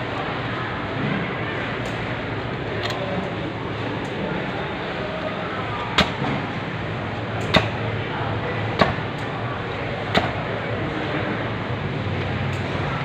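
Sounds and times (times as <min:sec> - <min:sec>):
cleaver chopping on wooden block: 0:10.1 - 0:10.4.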